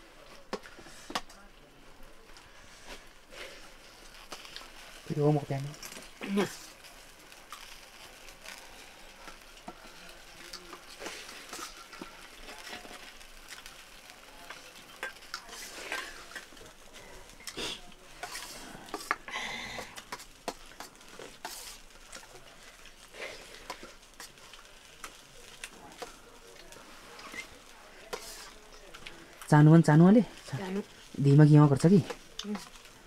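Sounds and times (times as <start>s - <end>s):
scraping rice on steel plates: 17.6s - 19.2s, 20.0s - 21.9s, 26.8s - 28.6s.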